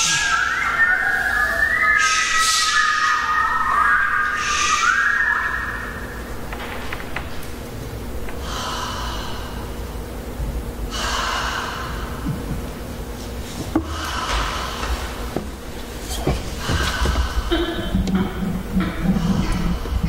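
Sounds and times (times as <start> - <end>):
breathy vocal ensemble: 8.3 - 10.1, 13.7 - 15.4, 16.5 - 20.0.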